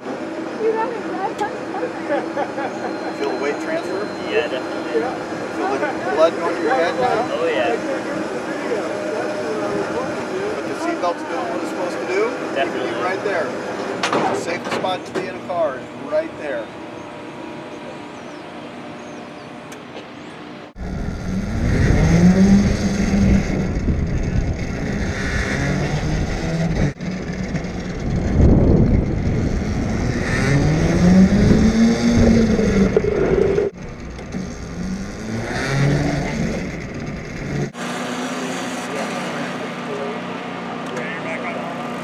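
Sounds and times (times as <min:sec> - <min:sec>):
go-kart motor revving: 0:20.8 - 0:40.0.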